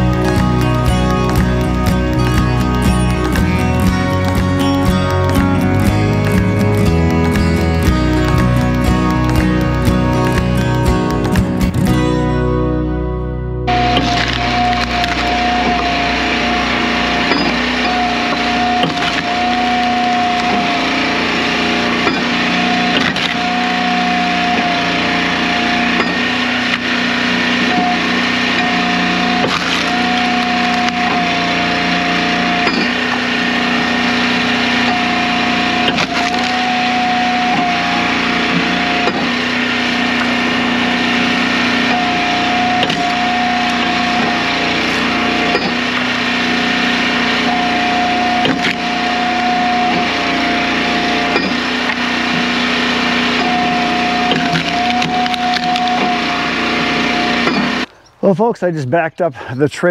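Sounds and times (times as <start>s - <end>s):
log splitter engine running: 0.0s - 59.9s
wood cracking and splintering: 13.7s - 58.0s.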